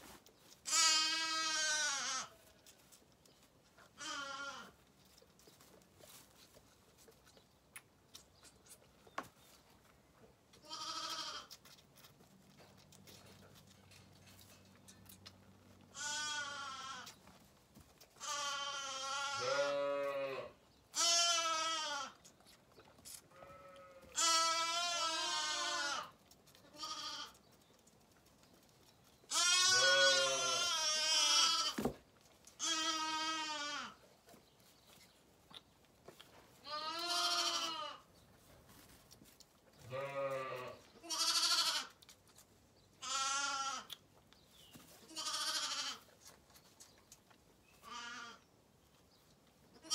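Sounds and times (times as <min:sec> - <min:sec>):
lambs bleating: 0:00.6 - 0:02.3, 0:04.0 - 0:04.8, 0:10.6 - 0:11.5, 0:15.9 - 0:17.2, 0:18.2 - 0:22.2, 0:23.3 - 0:26.1, 0:26.7 - 0:27.4, 0:29.3 - 0:31.8, 0:32.6 - 0:34.0, 0:36.6 - 0:38.0, 0:39.9 - 0:42.0, 0:43.0 - 0:44.0, 0:45.1 - 0:46.1, 0:47.8 - 0:48.4.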